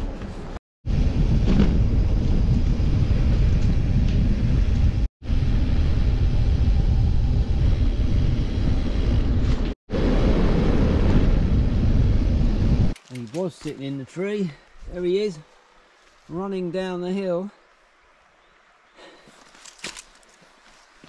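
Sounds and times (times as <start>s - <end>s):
wind rumble on microphone: 0.0s - 13.0s.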